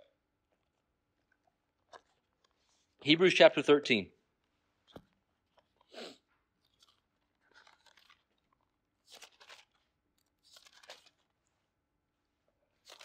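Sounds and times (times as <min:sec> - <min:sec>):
thin pages turning: 0:06.7 - 0:08.4, 0:09.0 - 0:11.3.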